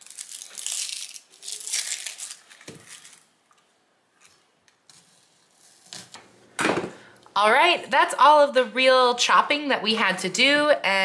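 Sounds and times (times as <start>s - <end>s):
onion skin crinkling and tearing: 0.0s - 6.2s
thump: 6.6s - 7.0s.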